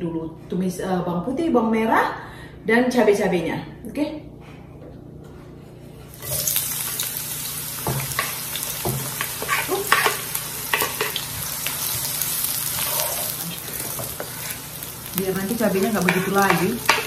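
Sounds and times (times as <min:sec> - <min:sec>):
food sizzling in hot oil: 0:06.1 - 0:17.0
utensil scraping a wok: 0:07.9 - 0:17.0.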